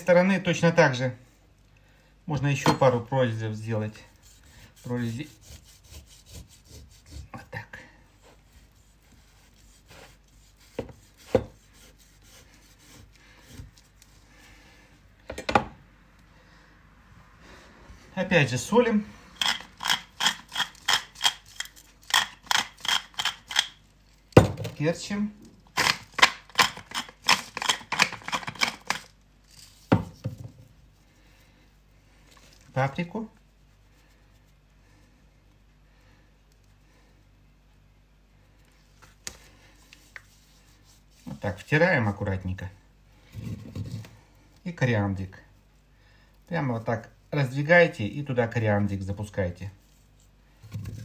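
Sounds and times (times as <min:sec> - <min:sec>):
knife rasping through pork skin: 0:03.8 - 0:07.5, 0:08.2 - 0:14.2, 0:19.4 - 0:23.8, 0:25.8 - 0:29.9
pepper mill grinding: 0:19.4 - 0:23.8, 0:25.8 - 0:29.8.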